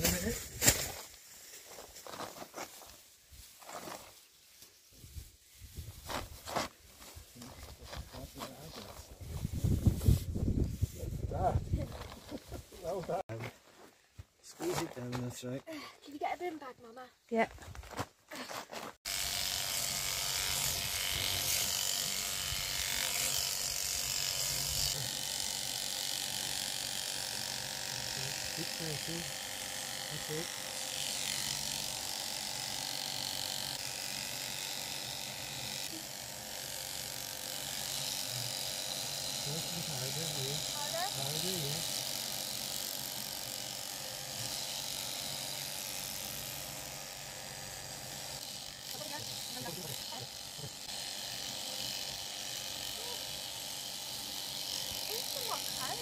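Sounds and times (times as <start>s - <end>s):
electric shears buzzing: 19.0s - 56.0s.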